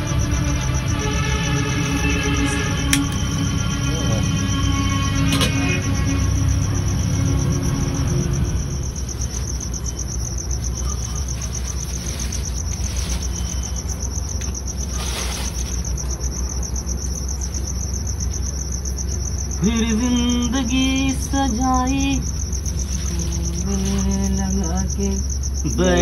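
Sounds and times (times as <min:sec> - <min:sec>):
crickets chirping: 0:00.0 - 0:26.0
plastic bag rustling: 0:10.6 - 0:16.1, 0:22.7 - 0:24.4
low steady hum: 0:16.5 - 0:26.0
person singing: 0:19.6 - 0:22.2.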